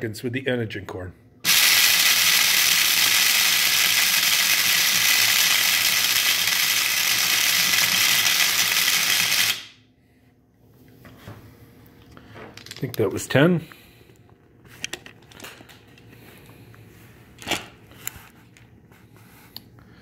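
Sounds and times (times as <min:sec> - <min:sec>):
coffee grinder grinding kernels: 0:01.5 - 0:09.7.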